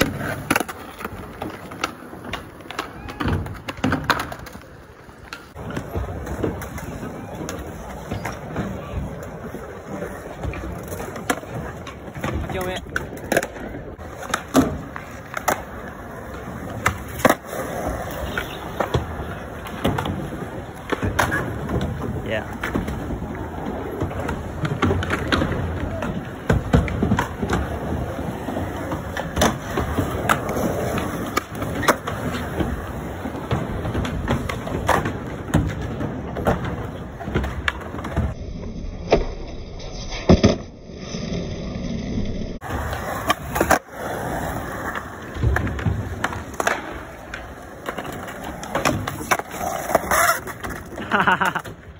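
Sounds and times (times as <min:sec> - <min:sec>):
skateboard landing clacks: 0:00.0 - 0:09.3, 0:42.6 - 0:51.9
skateboard clacks: 0:00.0 - 0:38.4, 0:42.6 - 0:51.9
skateboard wheels rolling on concrete: 0:00.0 - 0:51.9.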